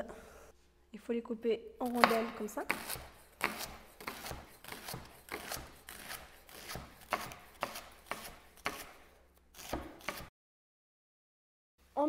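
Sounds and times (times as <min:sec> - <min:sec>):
knife slicing on wooden board: 0:01.9 - 0:10.3.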